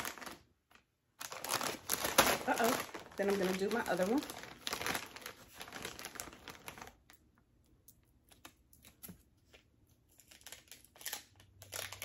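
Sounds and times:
chip bag crinkling: 0.0 - 7.2, 10.1 - 12.0.

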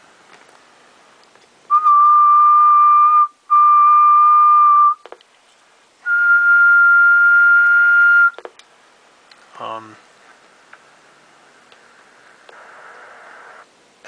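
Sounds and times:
person whistling steady note: 1.7 - 5.0, 6.1 - 8.4
faint clicks: 11.7 - 13.6.

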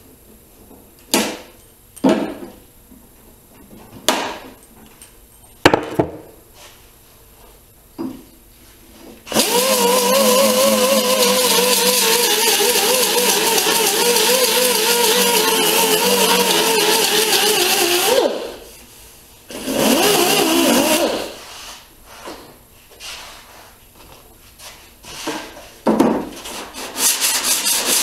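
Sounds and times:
pneumatic grinder whining on metal: 9.3 - 18.6, 19.5 - 21.4.

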